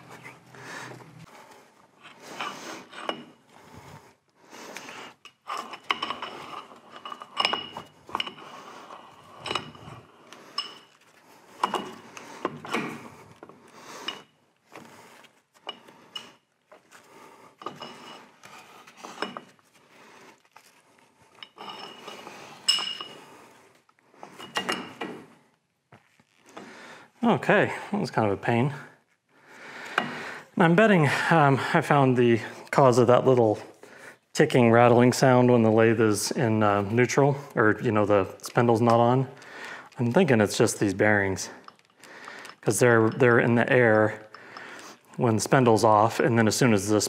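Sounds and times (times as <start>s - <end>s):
metal parts clinking and scraping: 5.2s - 14.3s, 20.4s - 23.2s.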